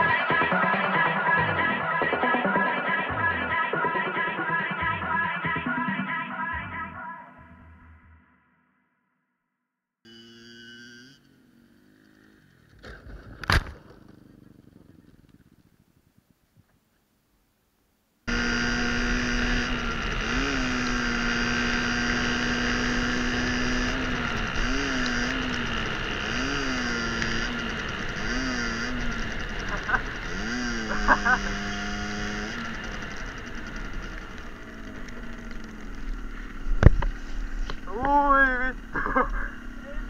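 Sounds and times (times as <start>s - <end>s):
moped engine revving: 10.1s - 15.8s, 18.3s - 40.0s.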